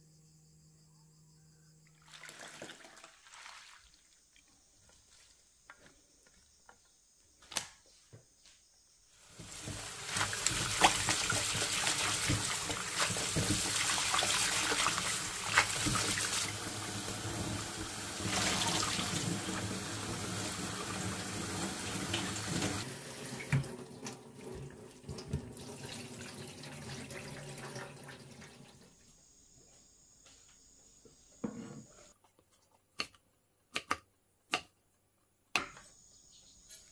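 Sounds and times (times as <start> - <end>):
tap water running into sink: 9.3 - 28.8.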